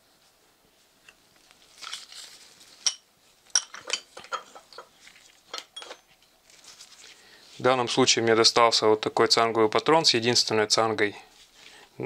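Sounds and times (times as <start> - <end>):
soft rustle: 0.0 - 3.5, 4.4 - 8.2, 11.2 - 11.8.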